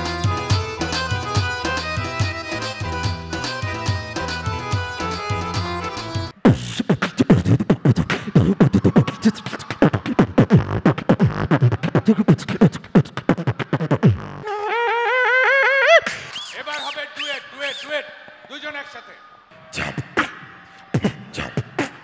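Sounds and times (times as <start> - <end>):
instrumental music: 0.0 - 8.4
beatboxing into a microphone: 6.2 - 18.5, 19.7 - 22.0.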